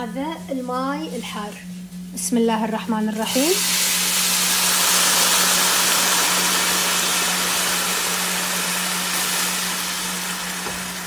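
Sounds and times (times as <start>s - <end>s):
steady low hum: 0.0s - 11.0s
water sizzling in hot fat: 3.2s - 11.0s
water pouring into pan: 3.6s - 11.0s.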